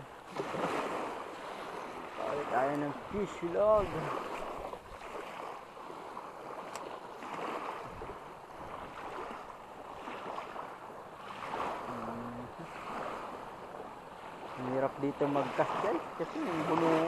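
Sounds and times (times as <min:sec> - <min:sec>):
waves lapping against rocks: 0:00.0 - 0:17.0.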